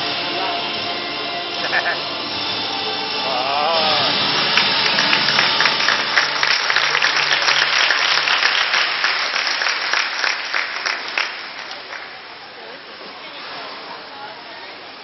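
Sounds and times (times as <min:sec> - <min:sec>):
crowd applauding: 0:03.2 - 0:12.3.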